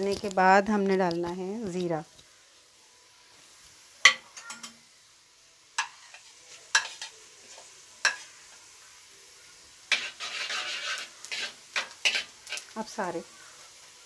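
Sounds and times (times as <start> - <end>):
onions sizzling in oil: 0.0 - 14.0
metal spoon clinking on pan: 4.0 - 4.8, 5.8 - 7.2, 8.0 - 8.3
stirring and scraping in pan: 5.7 - 14.0.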